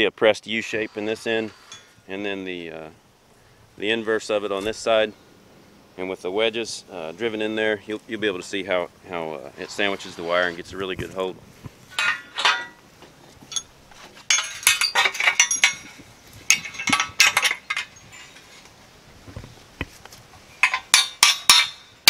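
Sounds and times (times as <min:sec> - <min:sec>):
hammer striking metal wedges: 0:20.6 - 0:21.9.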